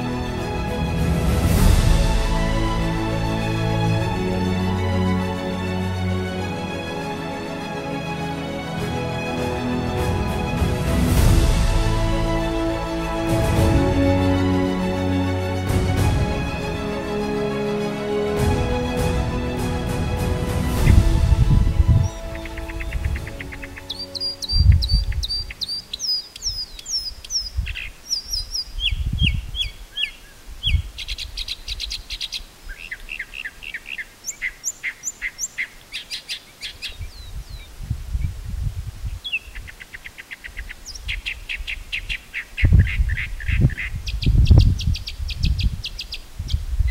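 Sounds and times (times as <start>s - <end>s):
low rumbles: 8.7s - 23.8s
mockingbird singing: 20.8s - 37.8s, 39.2s - 46.9s.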